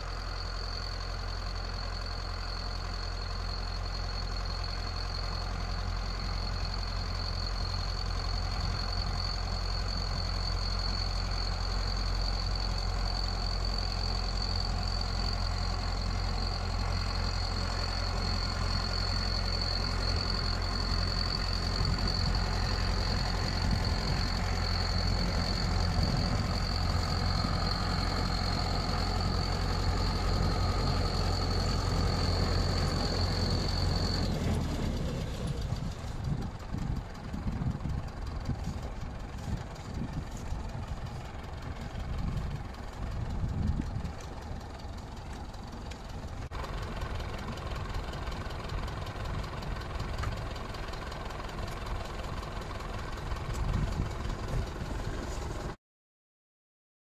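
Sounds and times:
tractor diesel engine running: 0.0 - 55.8
snow blower whine: 13.4 - 50.7, 52.8 - 55.8.

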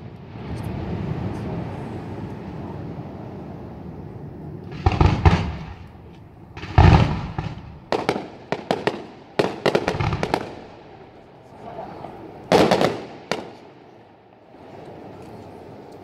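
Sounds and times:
low rumble: 0.0 - 8.6
fireworks bursting: 4.6 - 11.2, 12.5 - 14.1.

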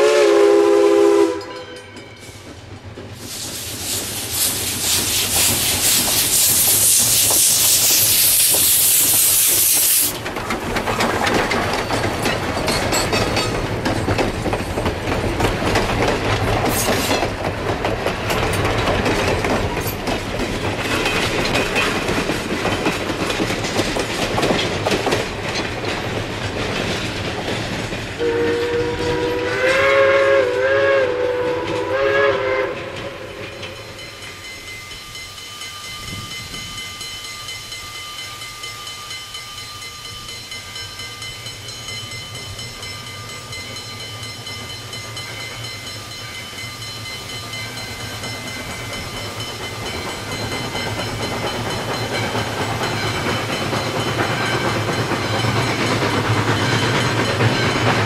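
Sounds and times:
steam whistle blast: 0.0 - 2.4, 28.2 - 33.9
wheels clacking over rail joints: 1.4 - 29.3, 41.3 - 58.0
steam hissing from locomotive: 2.1 - 10.3, 15.6 - 25.4, 28.0 - 58.0.

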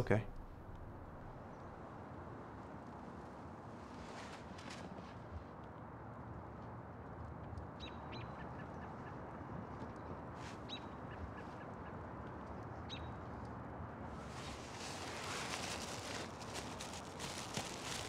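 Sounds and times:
rustling: 14.2 - 18.0.

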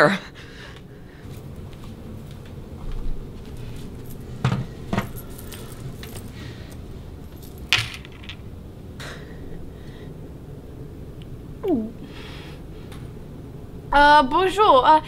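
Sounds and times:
room noise: 0.0 - 14.8.

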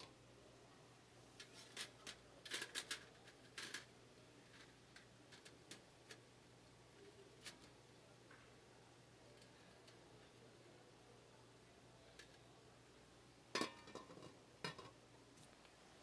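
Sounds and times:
crab shells clicking on metal tray: 1.7 - 3.9.

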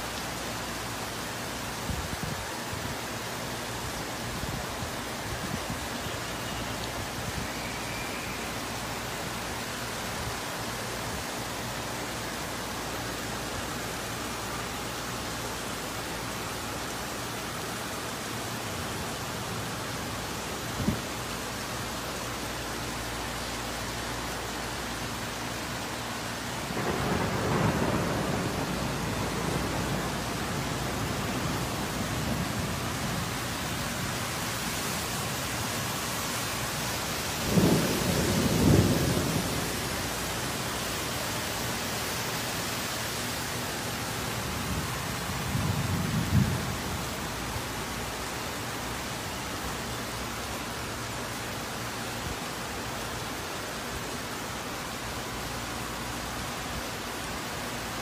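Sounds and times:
heavy rain falling: 0.0 - 58.0
thunder rumbling: 26.7 - 34.1, 37.4 - 40.4.

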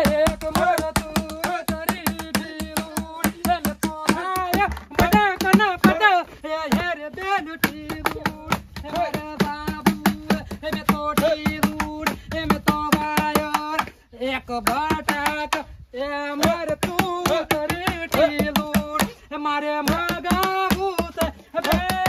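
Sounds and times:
dhol beating quick rhythm: 0.0 - 13.9, 14.6 - 15.6, 16.3 - 22.0.

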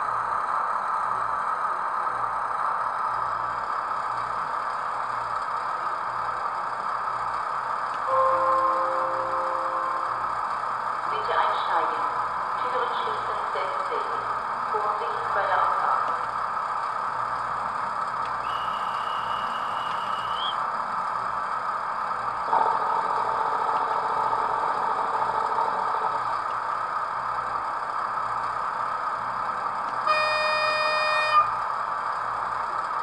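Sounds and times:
diesel engine hum from small speaker: 0.0 - 16.7, 17.4 - 33.0
short horn blast: 8.1 - 10.0, 30.1 - 31.6.

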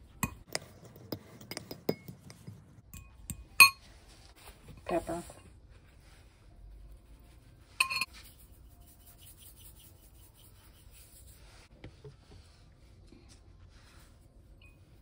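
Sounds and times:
rubbing and scraping handling noises: 3.6 - 15.0
ringing clink on glass bowl: 7.8 - 8.1.

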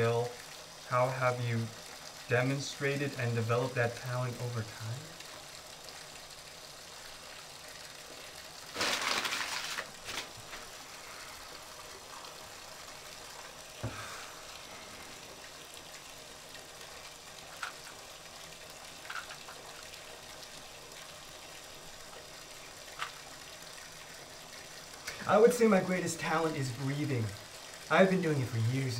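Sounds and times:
faint steady hiss: 0.0 - 28.9
bathwater splashing: 8.6 - 15.9.

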